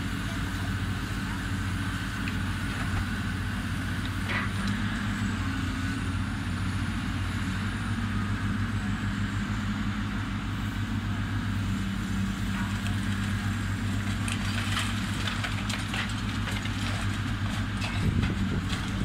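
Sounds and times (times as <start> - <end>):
diesel engine running under load: 0.0 - 19.0
debris cracking and snapping: 12.5 - 19.0.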